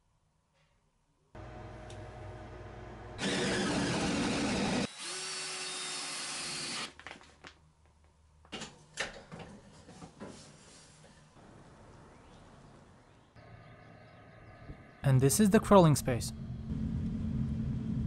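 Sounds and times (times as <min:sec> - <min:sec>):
power drill boring into wood: 0:03.2 - 0:06.9.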